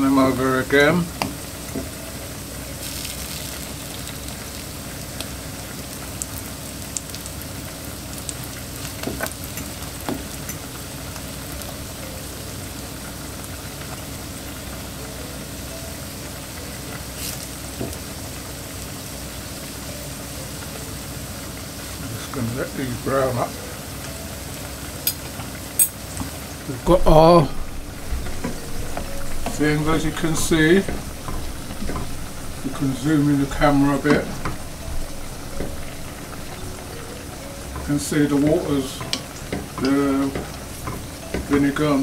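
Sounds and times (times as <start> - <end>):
plantain slices sizzling in oil: 0.0 - 42.0.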